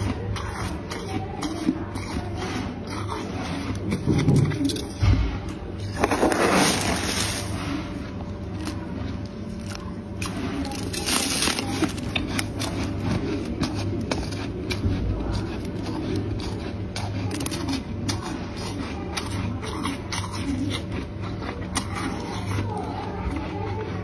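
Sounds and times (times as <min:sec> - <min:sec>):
frost crunching and crackling: 0:00.0 - 0:24.0
scraping frost: 0:05.8 - 0:08.1.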